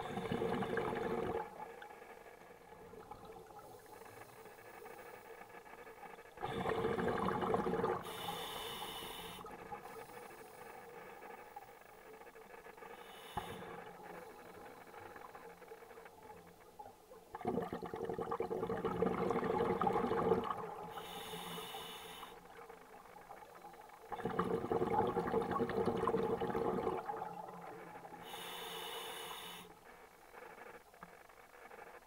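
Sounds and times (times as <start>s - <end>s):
bubbling exhale underwater: 0.0s - 1.6s, 6.4s - 8.2s, 17.3s - 21.3s, 24.1s - 28.4s
hissing regulator inhale: 8.0s - 11.1s, 12.9s - 14.5s, 20.9s - 22.5s, 28.2s - 29.8s.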